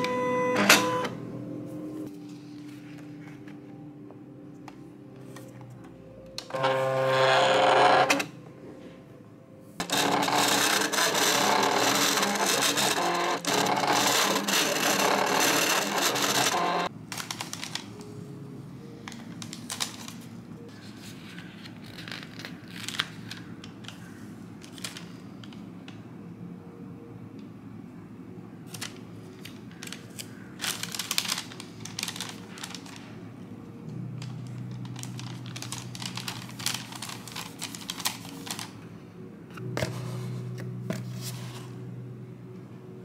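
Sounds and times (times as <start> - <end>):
cutting machine carriage and rollers: 9.8 - 16.9.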